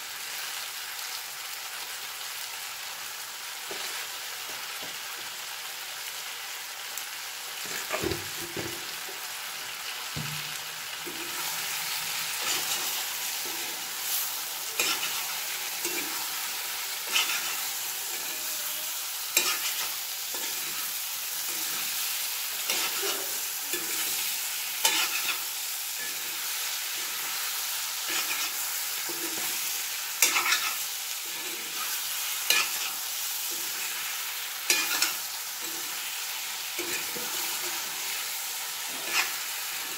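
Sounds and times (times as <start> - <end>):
food sizzling in a pan: 0.0 - 39.9
spatula knocking on pan: 10.2 - 10.6
spatula scraping a pan: 11.0 - 39.9.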